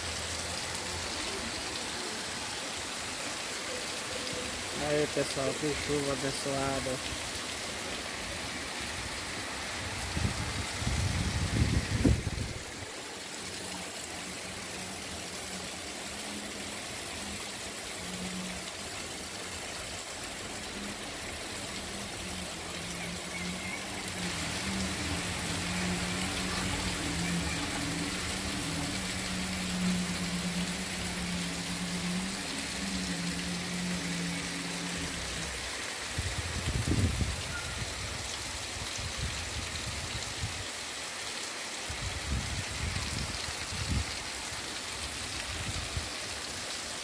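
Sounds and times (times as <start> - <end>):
heavy rain on cobbles: 0.0 - 47.0.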